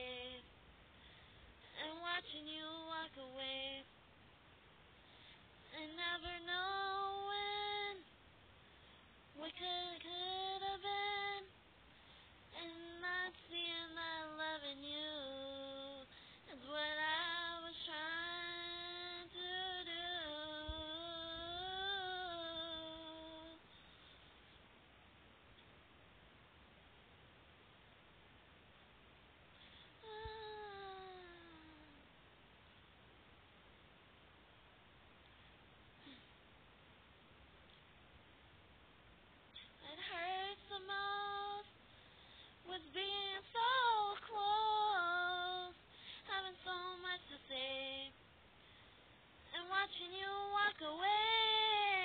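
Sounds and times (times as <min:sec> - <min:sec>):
woman singing unaccompanied: 0:00.0 - 0:00.5, 0:01.6 - 0:04.0, 0:05.7 - 0:08.2, 0:09.3 - 0:11.6, 0:12.5 - 0:23.7, 0:30.0 - 0:32.0, 0:39.6 - 0:41.8, 0:42.6 - 0:48.2, 0:49.5 - 0:52.0
faint hiss: 0:00.0 - 0:52.0.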